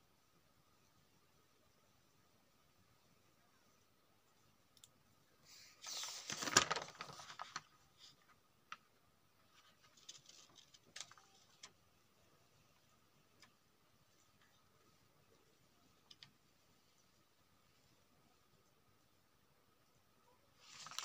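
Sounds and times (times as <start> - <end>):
faint clicks: 4.7 - 5.0
paper page rustling: 5.7 - 8.4, 9.4 - 11.8, 20.6 - 21.0.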